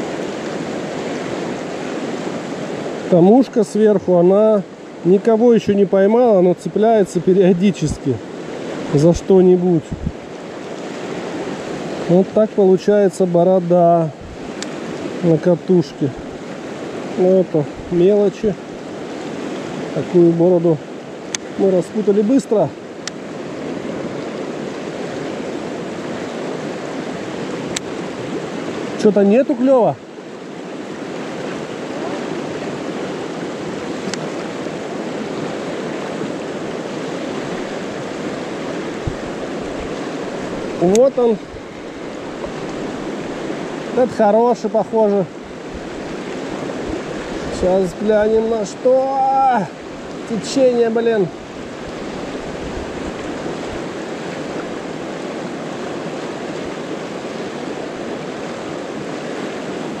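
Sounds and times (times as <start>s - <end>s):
river rushing over rocks: 0.0s - 60.0s.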